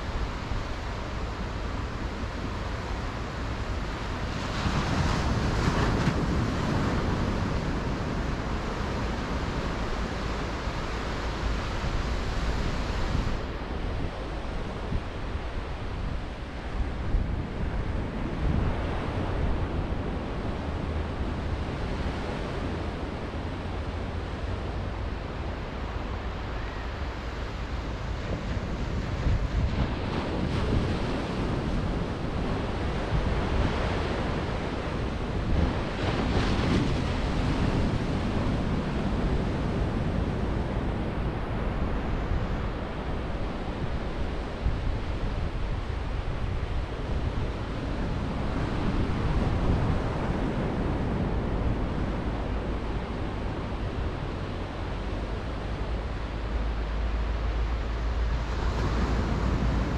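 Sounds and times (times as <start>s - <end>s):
wind rumbling on microphone: 0.0s - 59.9s
small waves breaking on sand: 25.7s - 59.9s.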